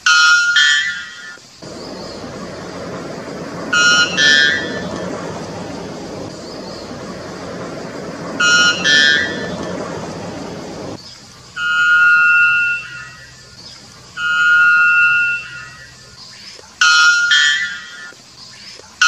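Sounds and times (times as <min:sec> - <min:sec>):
steady background noise: 0:00.0 - 0:19.0
bird calling loudly: 0:01.6 - 0:11.0.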